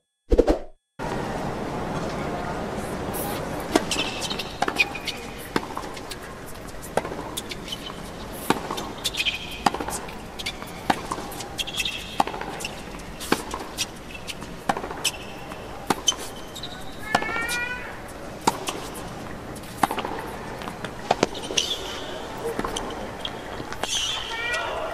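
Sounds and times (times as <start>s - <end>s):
shoes squeaking on court: 3.2s - 24.9s
racket striking tennis ball: 3.7s - 6.1s, 8.4s - 16.3s, 19.6s - 21.8s
ball bouncing: 8.4s - 12.6s.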